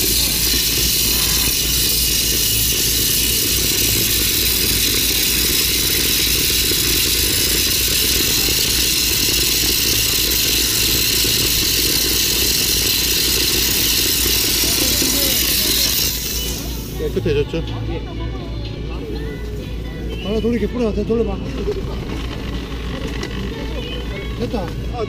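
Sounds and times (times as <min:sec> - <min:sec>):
steam jet hissing: 0:00.0 - 0:17.4.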